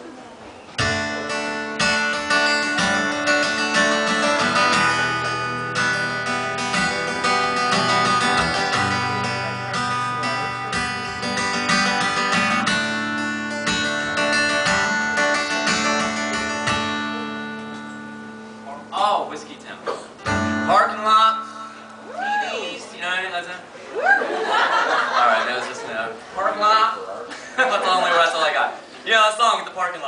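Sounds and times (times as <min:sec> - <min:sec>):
acoustic guitar strumming chords: 0:00.7 - 0:22.1.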